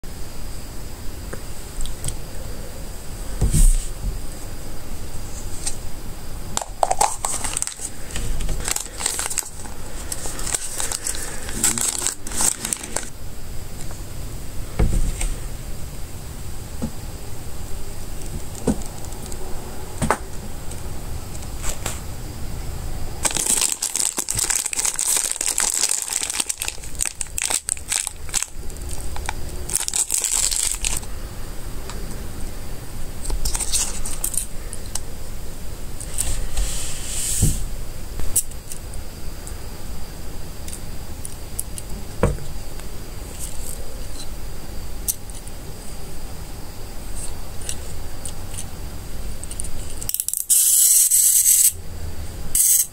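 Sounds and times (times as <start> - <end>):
crinkling plastic packaging: 6.6 - 13.2, 23.2 - 31.1, 33.3 - 34.4.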